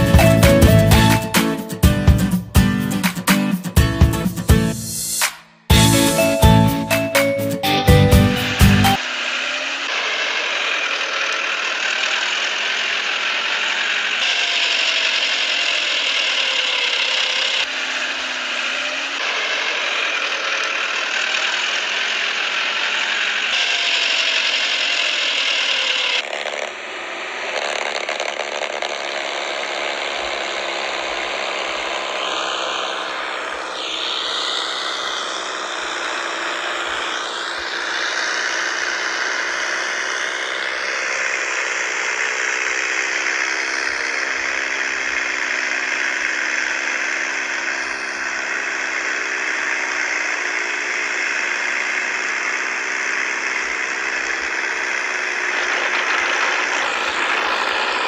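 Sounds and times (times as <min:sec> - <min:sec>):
toy tractor motor whirring: 0:08.8 - 0:58.0.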